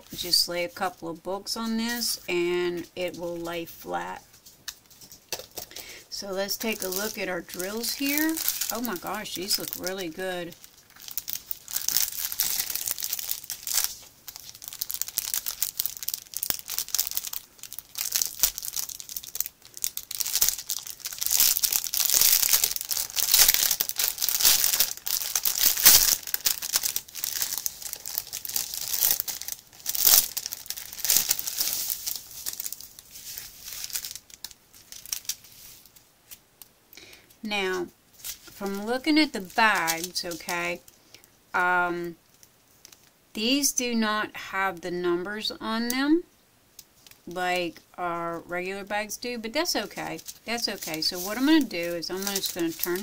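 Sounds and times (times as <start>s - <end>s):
plastic packaging crinkling: 1.9s - 37.4s, 38.2s - 41.4s, 42.1s - 43.2s, 49.2s - 53.0s.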